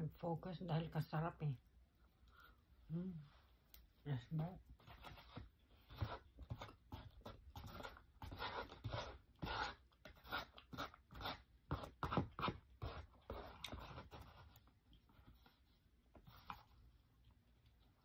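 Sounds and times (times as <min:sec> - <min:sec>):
cutlery scraping styrofoam box: 0:04.9 - 0:14.3.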